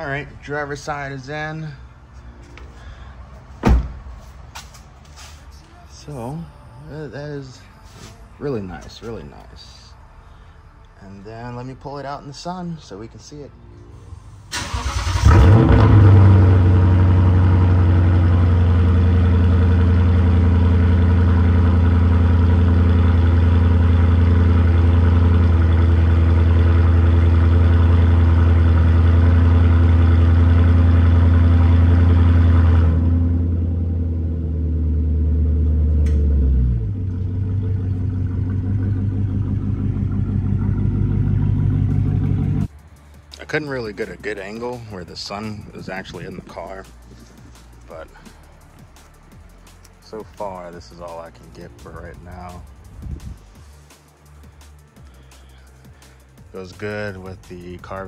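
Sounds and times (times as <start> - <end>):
car engine revving and idling: 14.6 - 58.0.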